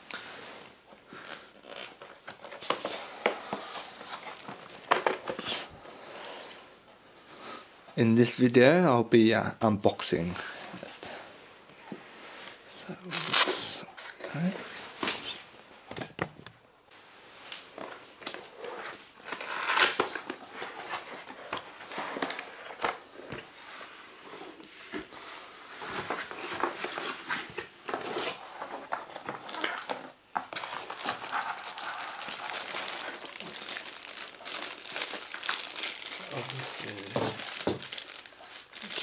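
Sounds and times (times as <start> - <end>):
plastic bag crinkling: 3.8 - 5.7, 28.3 - 39.0.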